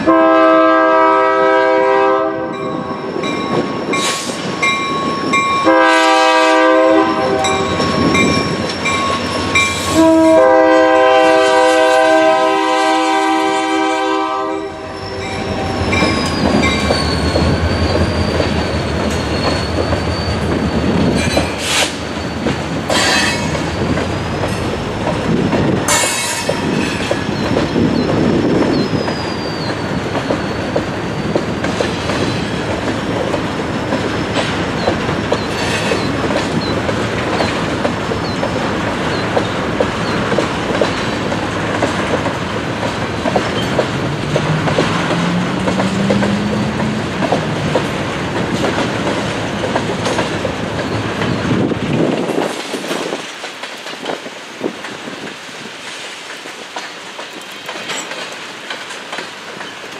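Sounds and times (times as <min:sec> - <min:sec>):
freight train rumbling: 0:00.0 - 0:59.9
wheel squeal: 0:14.9 - 0:24.5, 0:26.1 - 0:31.7, 0:34.8 - 0:36.8
wheels clacking over rail joints: 0:15.2 - 0:59.9.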